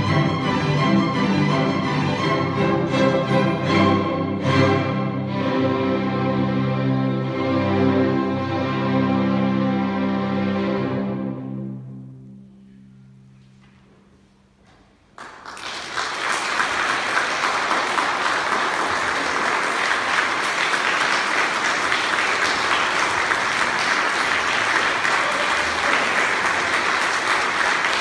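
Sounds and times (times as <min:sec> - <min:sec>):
string orchestra chord: 0:00.0 - 0:13.7
audience applause: 0:15.2 - 0:28.0.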